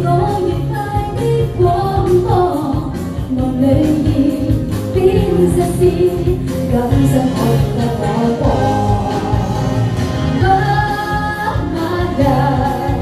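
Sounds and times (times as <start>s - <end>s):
karaoke backing track: 0.0s - 13.0s
woman singing into microphone: 0.0s - 13.0s.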